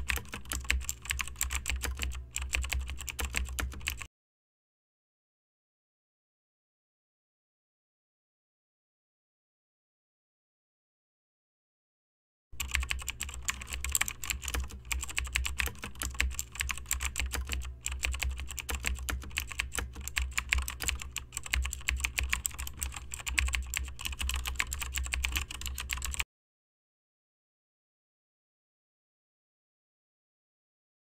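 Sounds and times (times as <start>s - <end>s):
typing on computer keyboard: 0.0s - 4.1s, 12.6s - 26.2s.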